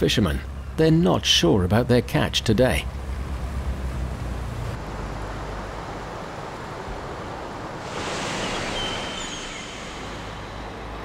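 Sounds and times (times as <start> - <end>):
sea water washing and lapping: 7.6 - 10.7
thin high whistle: 7.9 - 11.0.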